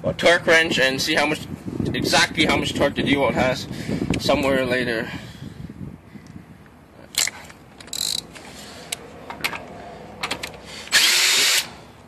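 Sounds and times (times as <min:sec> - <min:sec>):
cordless drill burst: 0:10.8 - 0:11.8.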